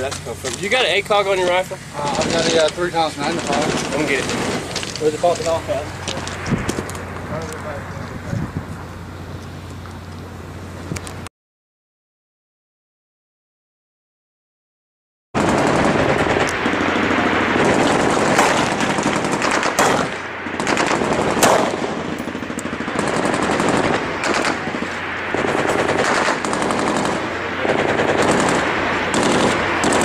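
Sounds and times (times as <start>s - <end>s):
automatic gunfire: 15.4s - 30.0s.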